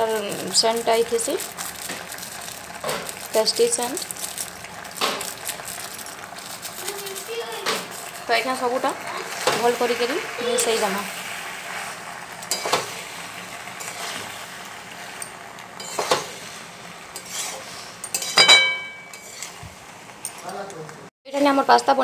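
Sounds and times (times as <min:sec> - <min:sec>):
spatula scraping metal wok: 0:00.0 - 0:19.6
faint sizzle: 0:00.0 - 0:22.0
metallic clink of spatula: 0:18.0 - 0:19.6.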